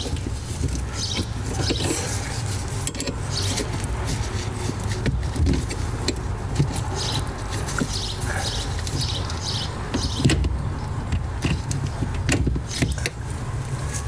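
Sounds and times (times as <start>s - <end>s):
rustling of gloved hands: 0.0s - 10.2s.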